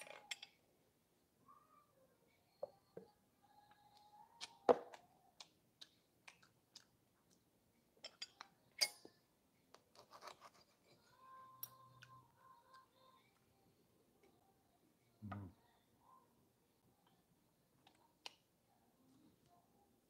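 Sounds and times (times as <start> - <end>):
cutlery clinking on plate: 8.0 - 9.2.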